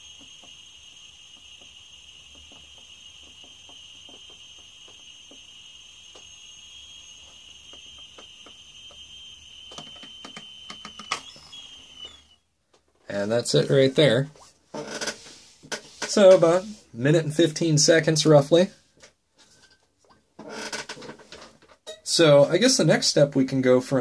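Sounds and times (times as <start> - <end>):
high-pitched gas whistle: 0.0 - 12.6.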